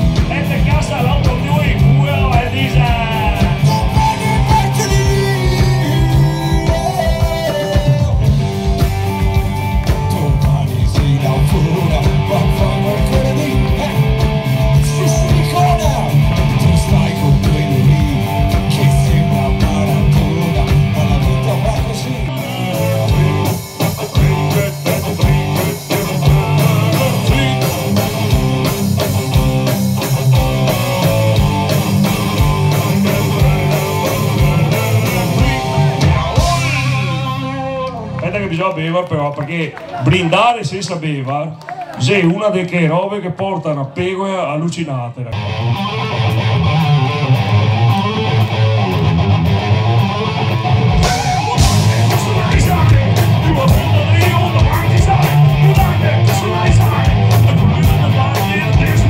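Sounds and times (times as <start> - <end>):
man singing: 0.0 - 31.8, 32.6 - 38.6, 51.0 - 59.0
drum beat: 0.0 - 37.5, 50.7 - 59.0
electric and acoustic guitars: 0.0 - 40.4, 45.3 - 59.0.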